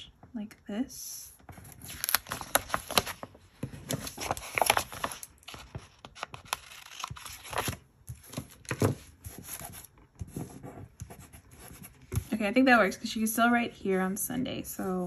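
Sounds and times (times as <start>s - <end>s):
paper rustling: 1.5s - 12.4s.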